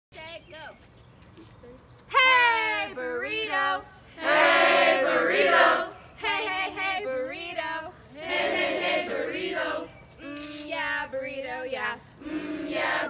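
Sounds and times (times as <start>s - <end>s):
teenagers chant-singing in unison: 2.7s - 10.0s, 12.2s - 13.0s.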